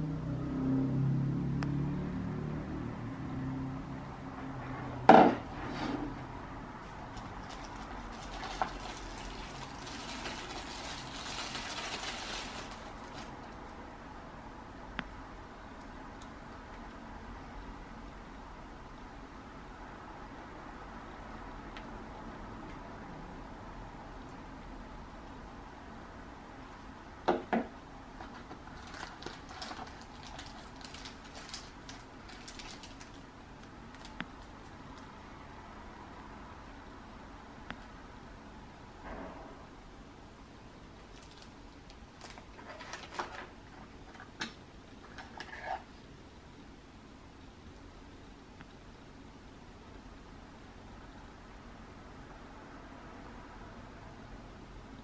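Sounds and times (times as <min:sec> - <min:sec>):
knocks on a desk: 0:05.1 - 0:05.4
plastic packaging rustling: 0:07.0 - 0:13.7, 0:28.2 - 0:34.8, 0:41.1 - 0:44.3.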